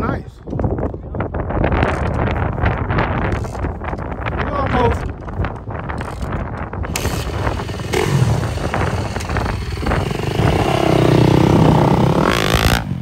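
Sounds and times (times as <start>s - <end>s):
dirt bike engines revving: 6.8s - 13.0s.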